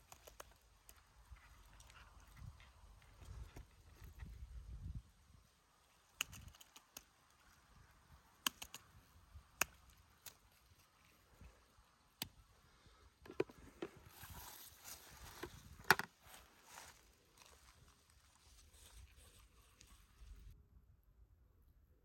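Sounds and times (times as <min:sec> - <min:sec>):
plastic cups clicking: 0:13.3 - 0:14.0.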